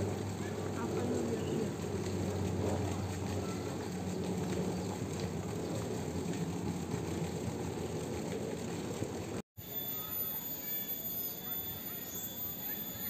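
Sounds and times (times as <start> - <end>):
outdoor background hum: 0.0 - 13.0.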